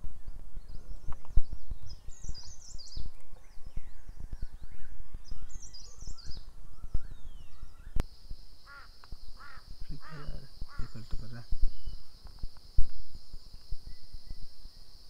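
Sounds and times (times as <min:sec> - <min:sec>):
gusty wind rumble on microphone: 0:00.0 - 0:15.0
small birds chirping: 0:00.0 - 0:15.0
harsh bird calls: 0:00.8 - 0:12.2
high-pitched insect drone: 0:07.5 - 0:15.0.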